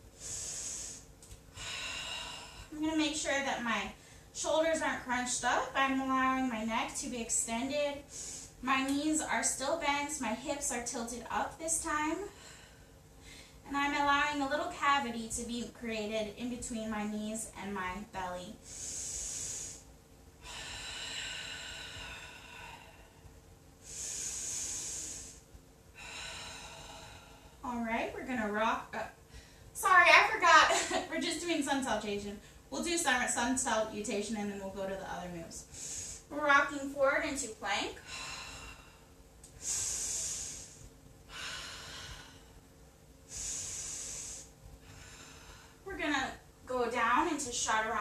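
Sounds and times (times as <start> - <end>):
woman breathing slowly: 0.0 - 3.2, 3.9 - 4.4, 8.0 - 8.6, 11.8 - 13.6, 18.6 - 27.7, 29.2 - 31.0, 35.6 - 36.8, 37.9 - 45.9.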